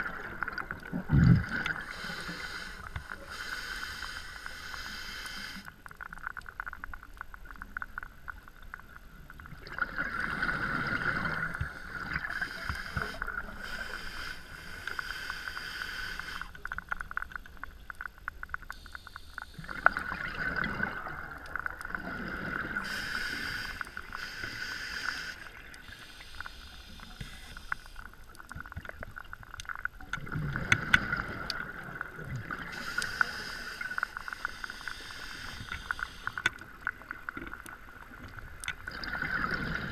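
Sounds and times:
steady fine crackle: 0.0s - 39.9s
diver breathing through regulator: 1.6s - 5.7s, 10.5s - 16.6s, 22.3s - 28.1s, 32.7s - 36.6s
exhaled bubbles rushing: 19.7s - 22.8s.

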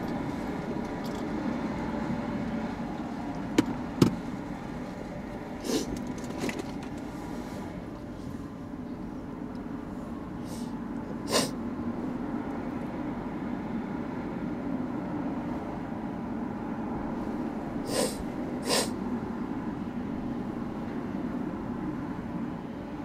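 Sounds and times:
short sharp hisses: 5.6s - 5.9s, 10.4s - 10.7s, 11.3s - 11.6s, 17.9s - 19.0s.

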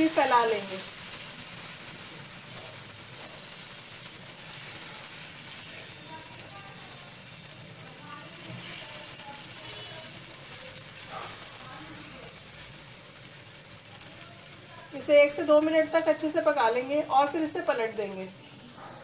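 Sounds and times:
batter sizzling in hot oil: 0.0s - 19.0s.

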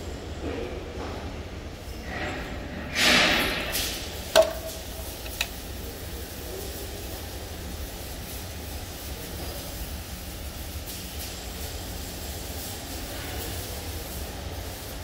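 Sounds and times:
sharp knock with ringing tone: 4.4s - 4.8s.

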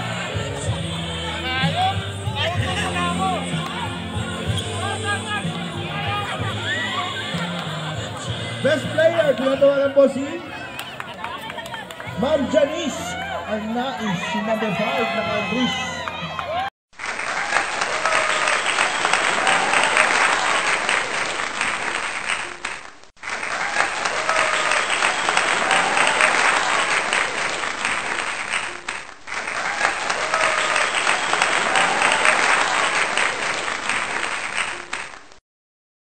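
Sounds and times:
crowd cheering: 0.0s - 35.1s
applause: 10.5s - 12.6s, 15.9s - 35.4s.

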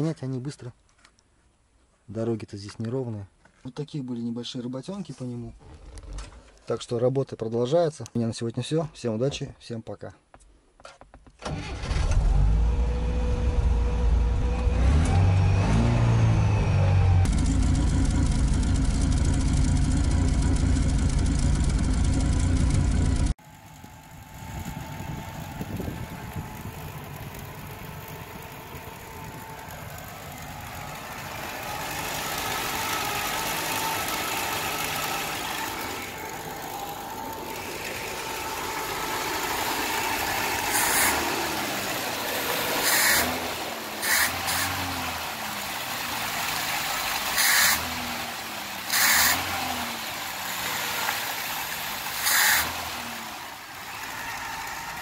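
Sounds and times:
car engine running and revving: 12.0s - 55.0s.

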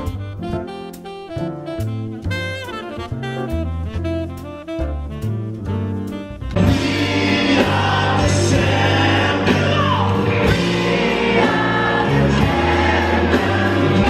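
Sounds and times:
held instrumental notes: 0.0s - 14.0s
full-band song with singing: 6.5s - 14.0s.

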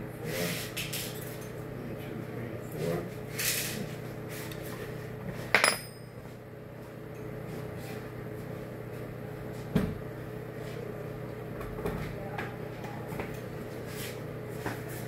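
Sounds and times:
sharp metal clink: 5.6s - 6.1s.

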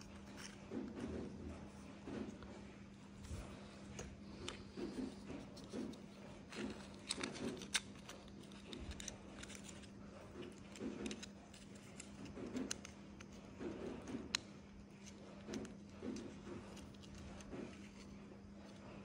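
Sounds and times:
steady low hum: 0.0s - 19.0s
small parts clicking and tapping: 5.6s - 18.8s.

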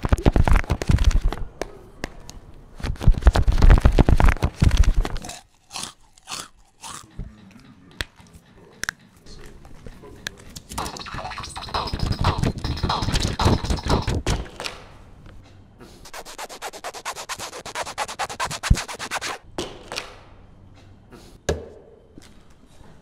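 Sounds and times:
footsteps on tiled stairs: 10.7s - 14.8s.

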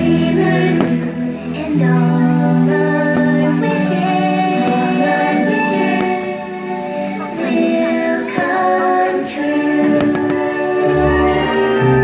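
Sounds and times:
sung music with choir: 0.0s - 12.0s
faint firework pops: 10.0s - 10.5s.

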